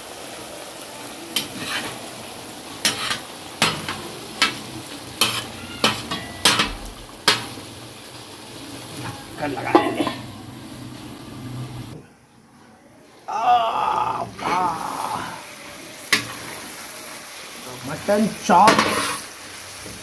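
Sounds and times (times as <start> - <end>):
meat sizzling in oil: 0.0 - 12.0, 14.2 - 20.0
spatula scraping griddle: 1.4 - 2.0, 2.8 - 7.5, 18.6 - 19.3.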